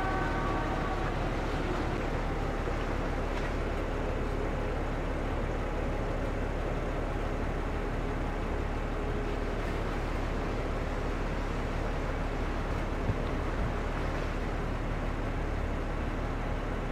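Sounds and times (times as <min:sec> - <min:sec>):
faint hum: 0:00.0 - 0:16.9
low outdoor rumble: 0:00.0 - 0:16.9.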